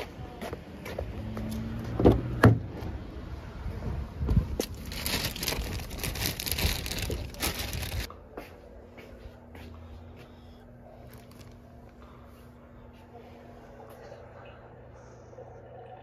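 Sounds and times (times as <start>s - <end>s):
plastic bag crinkling: 4.6s - 8.1s, 11.1s - 11.6s.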